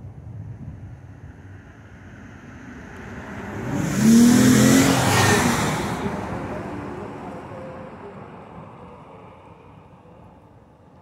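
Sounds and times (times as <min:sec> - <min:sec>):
car driving past: 0:01.3 - 0:10.0.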